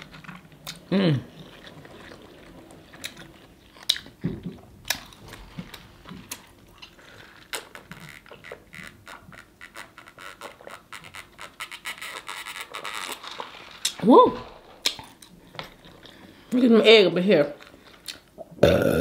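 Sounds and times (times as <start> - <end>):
chewing and lip smacks: 0.1 - 8.6, 17.8 - 18.6.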